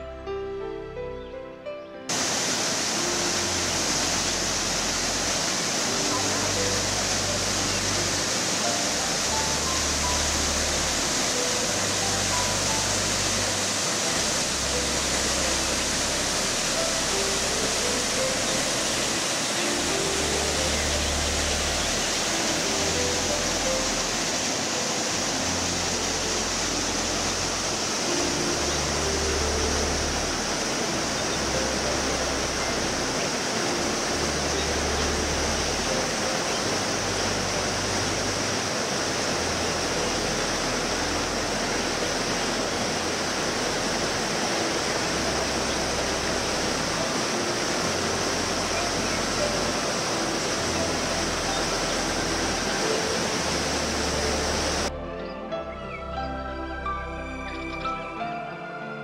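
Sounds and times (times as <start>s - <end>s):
waterfall rushing over rocks: 2.1s - 55.0s.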